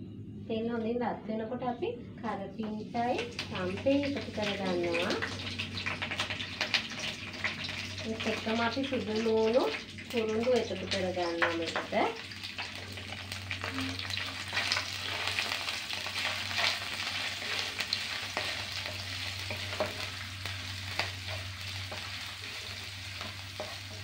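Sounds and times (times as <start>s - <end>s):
leaves sizzling in hot oil: 2.7s - 24.0s
spatula scraping a pan: 12.9s - 24.0s.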